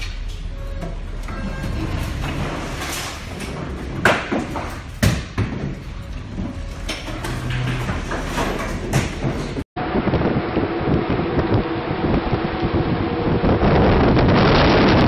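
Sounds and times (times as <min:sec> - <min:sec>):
heavy thuds and knocks: 0:02.1 - 0:09.7
wind and sea rushing: 0:09.8 - 0:15.0.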